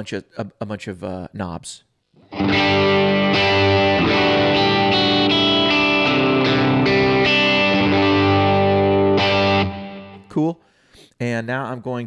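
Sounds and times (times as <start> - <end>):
electric guitar strumming chords: 2.2 - 10.2.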